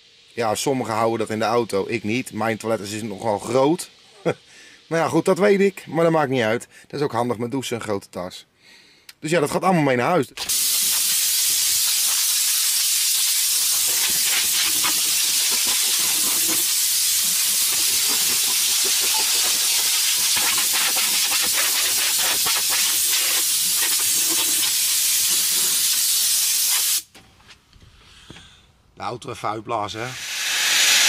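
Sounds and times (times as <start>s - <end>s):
compressed air hissing: 0.0s - 5.9s, 10.4s - 27.1s, 30.0s - 31.0s.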